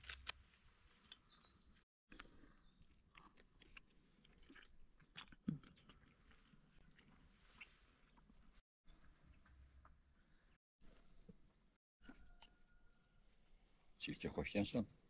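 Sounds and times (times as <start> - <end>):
chewing: 2.1 - 8.2.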